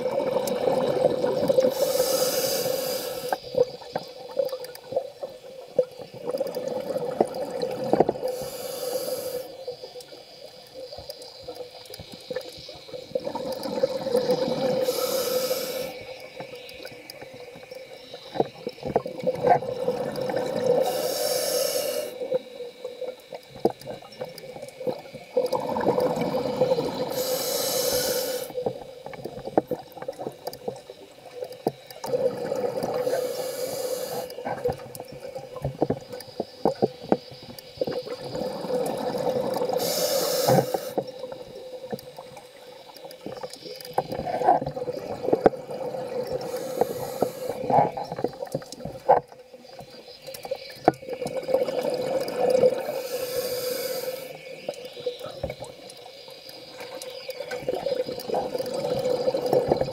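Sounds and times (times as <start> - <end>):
exhaled bubbles gurgling: 0.0 - 59.9
regulator inhale hiss: 1.5 - 3.8, 7.9 - 10.6, 13.9 - 18.5, 19.8 - 23.3, 25.4 - 28.9, 32.0 - 34.9, 38.4 - 42.0, 46.0 - 48.2, 52.5 - 56.2.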